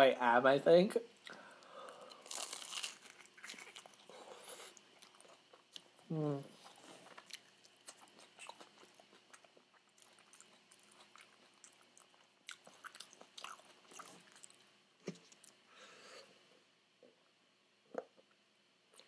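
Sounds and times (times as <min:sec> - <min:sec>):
crunchy chewing: 0:01.2 - 0:06.0, 0:06.6 - 0:15.6.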